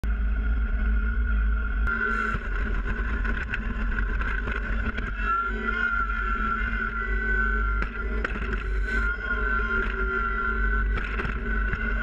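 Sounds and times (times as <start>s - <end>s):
high whine: 0.0s - 12.0s.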